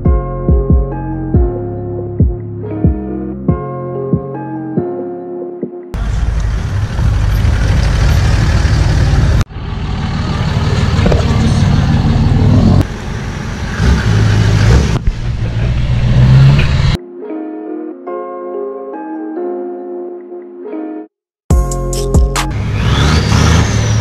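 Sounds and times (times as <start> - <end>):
pickup trucks driving past: 6.0 - 17.0
tyre and road noise: 6.0 - 17.0, 22.4 - 24.0.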